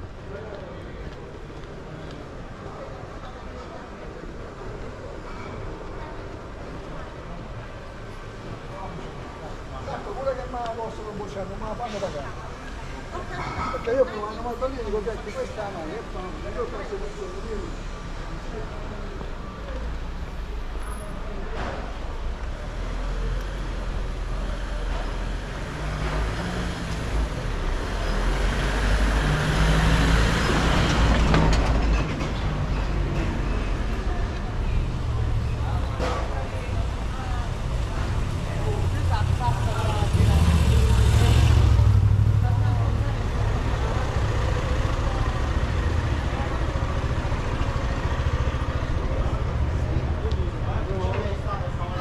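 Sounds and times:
vehicle engine rumbling: 0:16.6 - 0:52.0
van driving past: 0:38.3 - 0:50.8.

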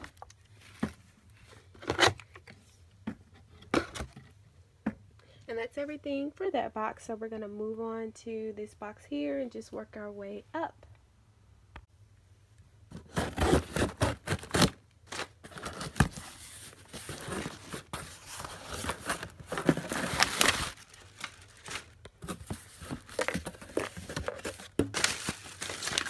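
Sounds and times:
tape ripping from cardboard box: 0:13.0 - 0:26.0
packing materials crinkling: 0:13.1 - 0:26.0.

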